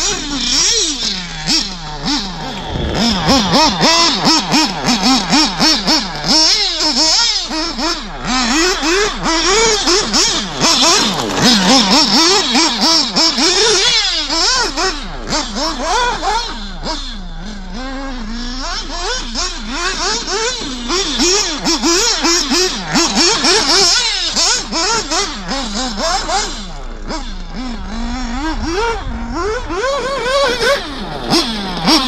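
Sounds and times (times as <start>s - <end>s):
model car engine revving: 0.0s - 32.0s.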